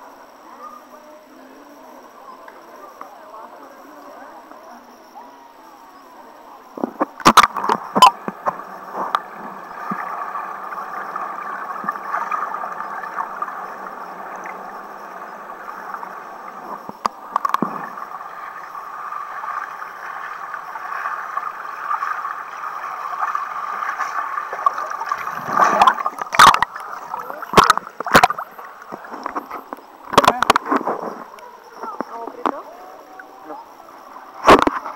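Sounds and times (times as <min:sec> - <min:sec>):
muffled underwater noise: 0:00.0 - 0:34.9
water splashes: 0:06.6 - 0:34.9.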